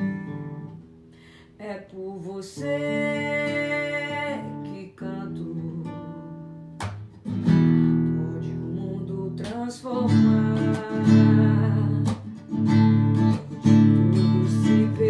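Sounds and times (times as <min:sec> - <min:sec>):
acoustic guitar strummed: 0:00.0 - 0:01.6, 0:02.6 - 0:15.0
woman singing: 0:01.6 - 0:06.6, 0:07.6 - 0:15.0.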